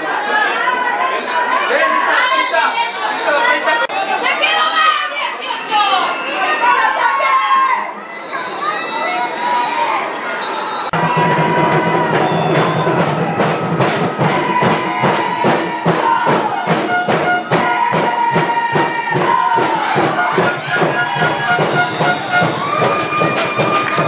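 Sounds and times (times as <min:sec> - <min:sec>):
music with quick steady beat: 0:11.0 - 0:24.0.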